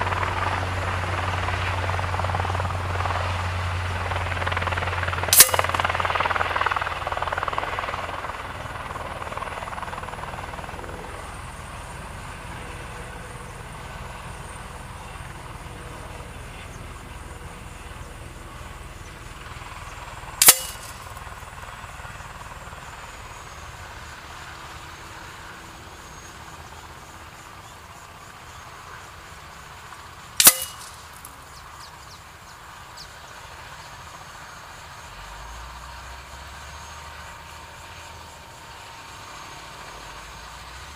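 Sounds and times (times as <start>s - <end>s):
pellets striking paper target: 5.3s - 5.8s, 20.4s - 21.2s, 30.4s - 31.3s.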